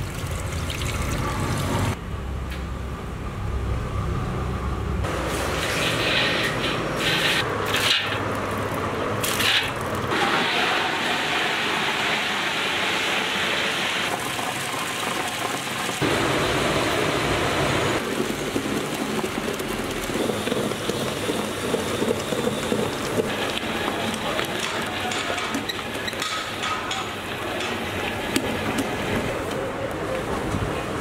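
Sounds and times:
wet grinder churning batter: 18.0s - 29.3s.

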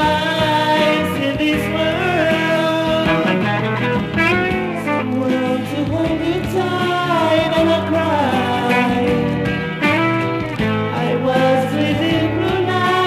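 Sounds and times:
electric guitar: 0.0s - 13.0s
pop rock band music: 0.0s - 13.0s
steady bass line: 0.0s - 13.0s
pitch-bending melody line: 3.0s - 5.4s.

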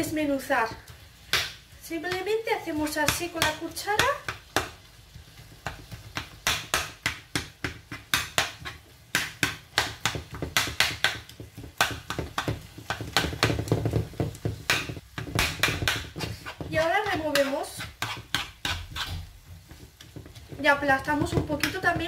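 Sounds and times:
metal spoon scraping frying pan: 16.2s - 19.9s.

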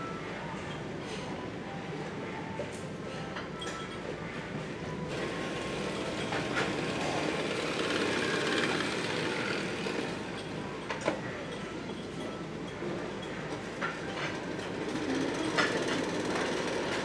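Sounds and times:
conveyor belt mechanical running: 4.2s - 17.0s.

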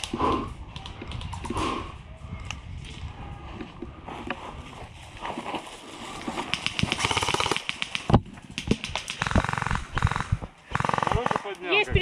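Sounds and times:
airsoft guns firing full auto: 6.5s - 11.5s.

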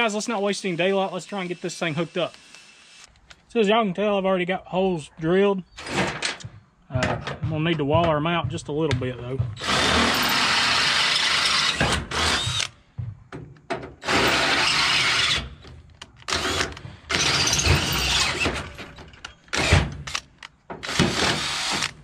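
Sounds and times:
cordless drill drilling steel: 0.1s - 3.1s, 9.6s - 12.7s, 14.0s - 15.6s, 16.3s - 18.6s, 19.5s - 19.8s, 20.8s - 22.0s.

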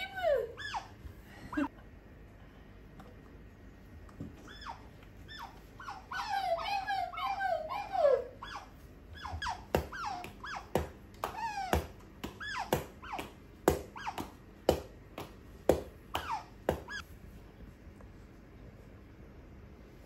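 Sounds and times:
otter squeaking chirps: 0.0s - 1.0s, 4.4s - 14.4s, 16.1s - 17.0s
hand claps: 10.2s - 16.9s.

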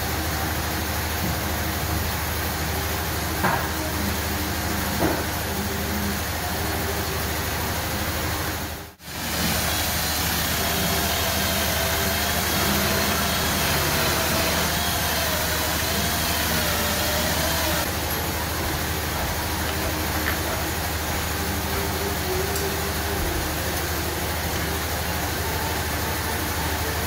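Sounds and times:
shop machinery rushing noise: 0.0s - 27.0s
cordless drill boring into steel: 9.0s - 18.2s.

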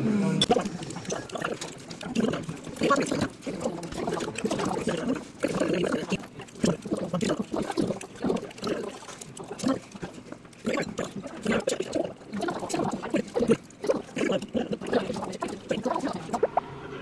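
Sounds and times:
person chewing food: 0.4s - 16.5s.

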